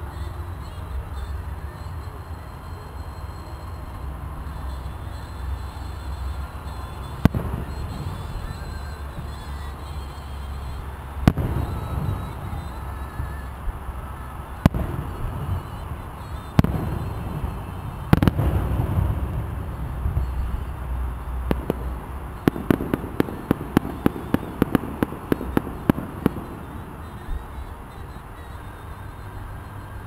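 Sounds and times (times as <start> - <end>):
steady low rumble: 0.0 - 30.0
firework shell bursts: 5.2 - 13.8, 14.6 - 29.2
rapid firework cracks: 7.0 - 9.7, 11.2 - 13.5, 14.6 - 28.5.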